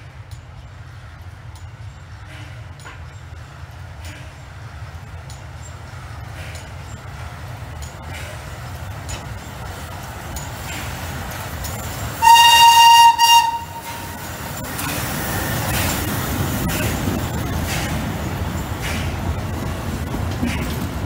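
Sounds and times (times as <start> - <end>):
train rumbling past: 0.0 - 21.0
train wheels beating: 0.0 - 21.0
steam locomotive whistle: 12.2 - 14.2.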